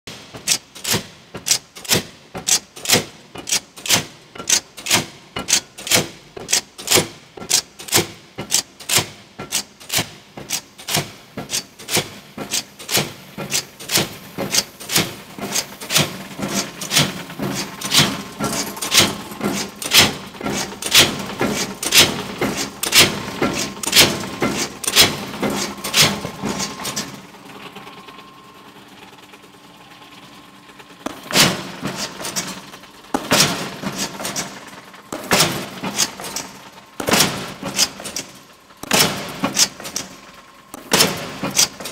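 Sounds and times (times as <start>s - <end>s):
power shear metallic clanks: 0.4s - 27.3s, 31.0s - 41.9s
low machine hum: 12.3s - 41.9s.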